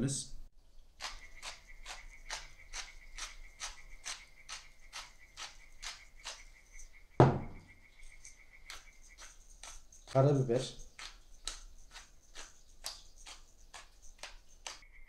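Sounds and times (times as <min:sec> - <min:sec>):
salt grinder crunchy clicks: 0:01.0 - 0:06.4, 0:10.9 - 0:14.8
grinder knocking on table: 0:07.2 - 0:07.6.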